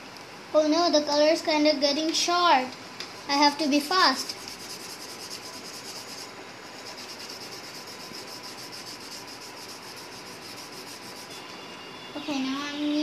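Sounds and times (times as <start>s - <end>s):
pencil scratching on paper: 4.2s - 11.4s.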